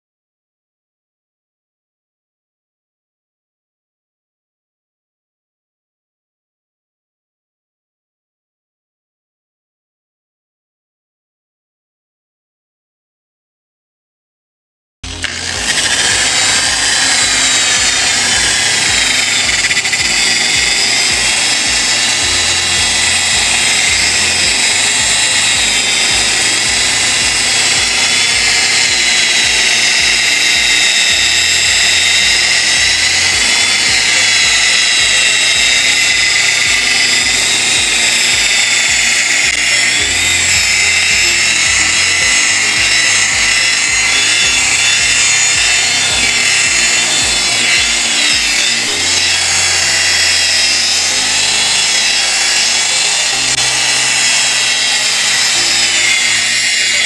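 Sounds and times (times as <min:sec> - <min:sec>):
buffing machine motor whine: 0:15.0 - 0:57.0.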